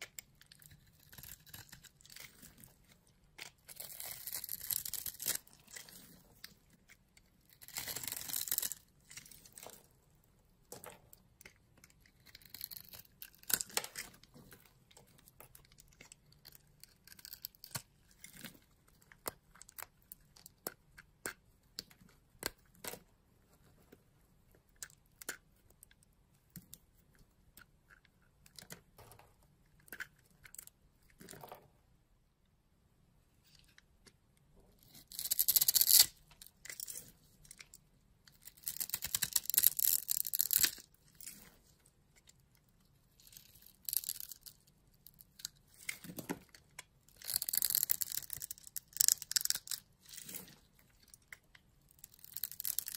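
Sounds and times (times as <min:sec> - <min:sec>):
soap snapping and crunching: 0:00.0 - 0:09.7, 0:11.3 - 0:14.3, 0:15.1 - 0:22.9, 0:38.4 - 0:41.3, 0:47.1 - 0:49.9, 0:51.0 - 0:52.9
soap crumbling under a blade: 0:00.0 - 0:23.1, 0:24.5 - 0:31.5, 0:34.8 - 0:52.9.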